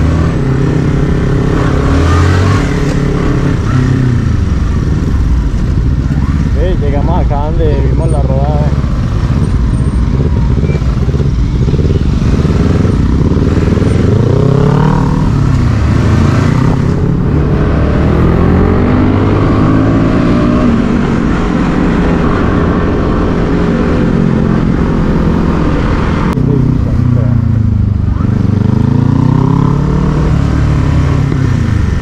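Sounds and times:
motorcycle engine accelerating: 0.0s - 32.0s.

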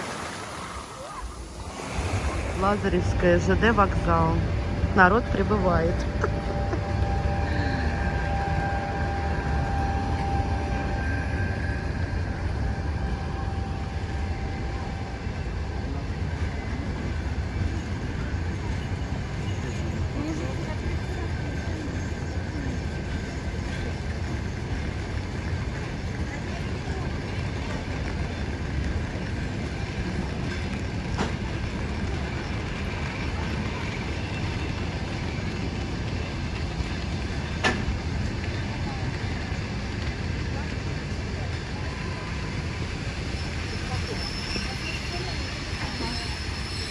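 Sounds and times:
faint steady whine: 0.0s - 20.1s
train low rumble: 0.0s - 46.9s.

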